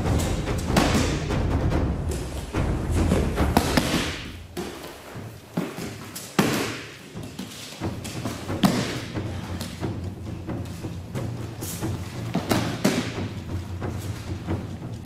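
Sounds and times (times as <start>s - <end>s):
background music with drums: 0.0s - 15.0s.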